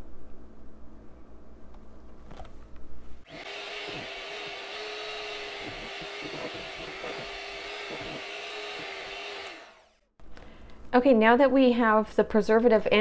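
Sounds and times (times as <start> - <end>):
beaters whipping in plastic bowl: 3.3 - 9.6
electric hand mixer running: 3.3 - 10.1.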